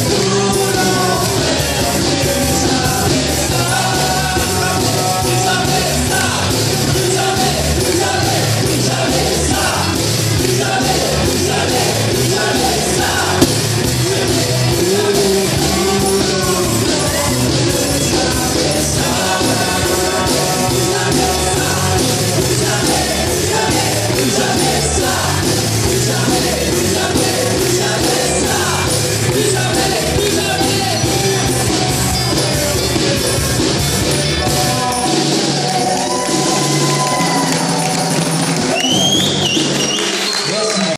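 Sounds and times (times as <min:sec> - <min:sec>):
person singing: 0:00.0 - 0:32.6
live band playing loudly: 0:00.0 - 0:40.9
djembe hand drums: 0:13.4 - 0:14.0.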